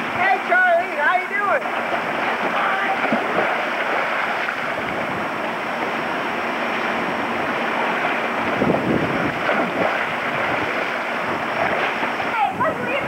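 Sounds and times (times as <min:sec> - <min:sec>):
steady rushing noise: 0:00.0 - 0:13.0
water splashing in pool: 0:00.0 - 0:13.0.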